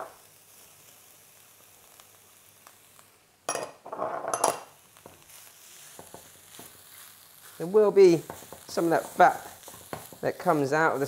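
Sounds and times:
food sizzling in wok: 0.0 - 11.0
clinking and scraping in wok: 3.5 - 4.7.

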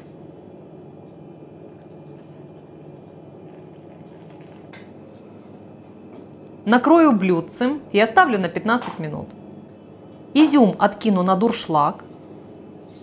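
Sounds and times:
water pouring into glass bowl: 3.4 - 4.9.

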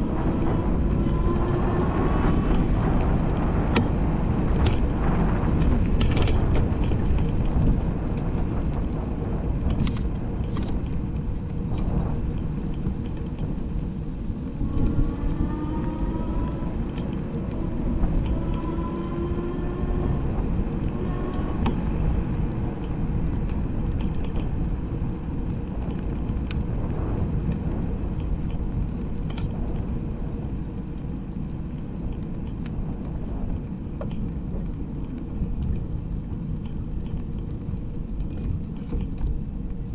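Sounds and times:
wheels rolling on pavement: 0.0 - 39.9
wind rumble: 0.0 - 39.9
faint rising tones: 14.2 - 21.6.

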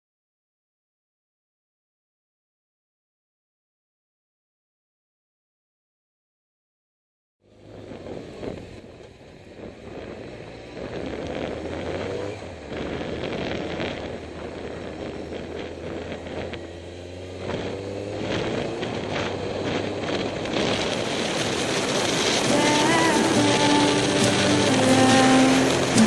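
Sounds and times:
motorcycle engine: 7.4 - 26.0
wind rush: 7.6 - 26.0.

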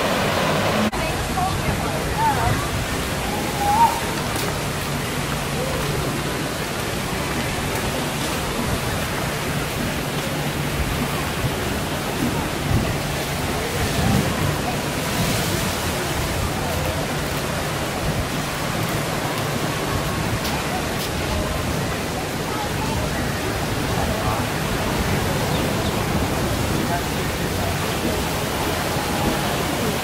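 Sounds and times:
faint voices: 0.0 - 30.0
surf: 0.0 - 30.0.

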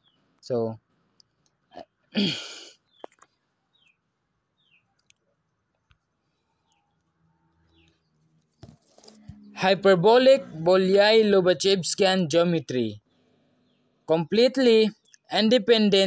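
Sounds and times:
person sighing: 2.2 - 2.8
faint clicks: 5.0 - 6.1.

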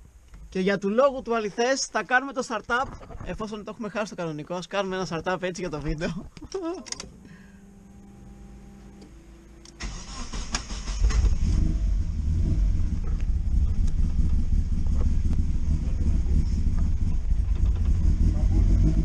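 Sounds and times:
car engine running: 7.1 - 19.0.

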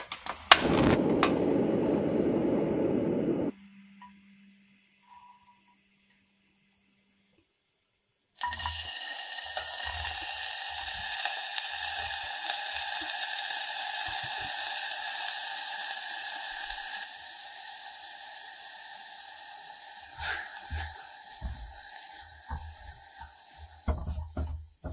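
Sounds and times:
onion sizzling in hot oil: 8.4 - 24.9
soft knocks on a pan: 20.7 - 21.8, 23.8 - 24.9.

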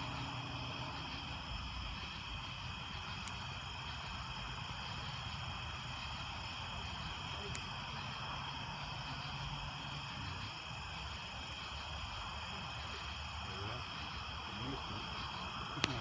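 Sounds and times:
night insects chirping: 0.0 - 16.0
faint ticks: 3.1 - 3.5, 7.4 - 7.7.

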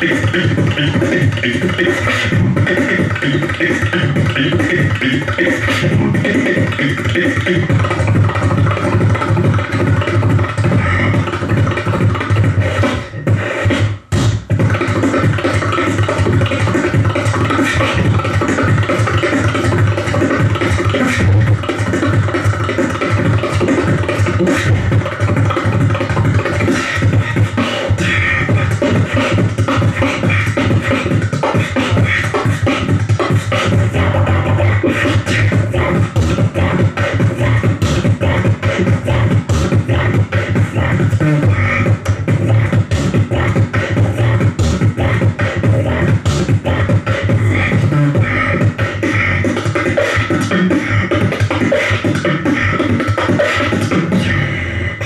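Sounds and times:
beatboxing into a microphone: 0.0 - 55.0
steady low bass: 5.8 - 6.9, 7.5 - 13.4, 23.2 - 25.1, 28.0 - 31.3, 32.8 - 49.4, 54.1 - 55.0.

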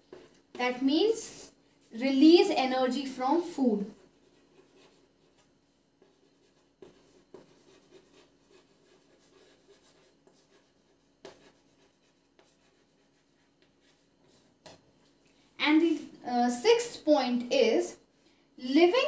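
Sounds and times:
pen scratching on paper: 0.0 - 1.2, 3.9 - 14.8.

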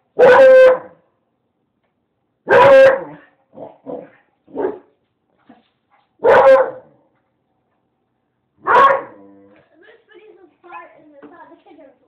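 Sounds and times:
dog yipping: 0.2 - 0.9, 6.2 - 6.8, 8.6 - 9.2
dog barking: 0.2 - 1.0, 2.5 - 3.3, 3.9 - 4.9, 6.2 - 7.0, 8.6 - 9.2.

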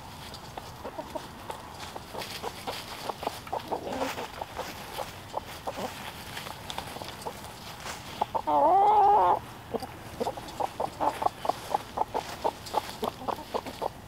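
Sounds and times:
chickens clucking: 0.0 - 14.0
chicken wavering call: 8.2 - 9.4.

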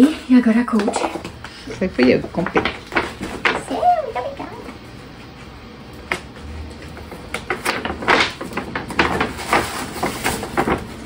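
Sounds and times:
packaging rustling and knocking: 2.0 - 3.8, 6.8 - 11.0.

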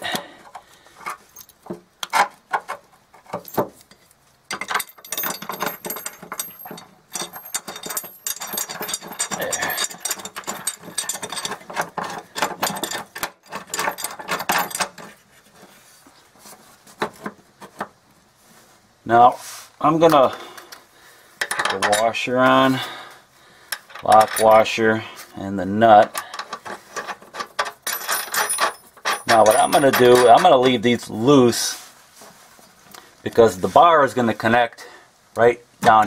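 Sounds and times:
metal bolt clicks and rattles: 0.1 - 15.2, 21.4 - 22.1, 23.7 - 24.7, 26.0 - 30.8.

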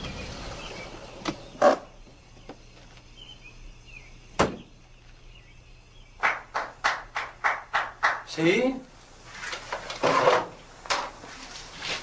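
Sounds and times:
sharp knocks: 6.2 - 8.3.

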